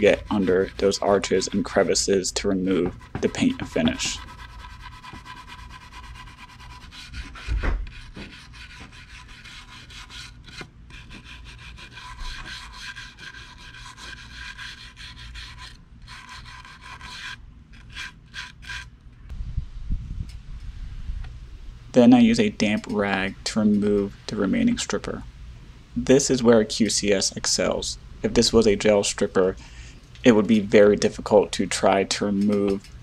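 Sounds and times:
brush scrubbing wood: 0.0 - 18.9
low thump: 7.5 - 7.9.

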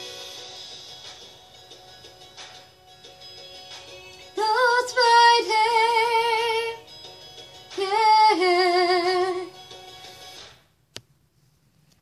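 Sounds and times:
woman singing with vibrato: 4.3 - 6.8, 7.8 - 9.6.

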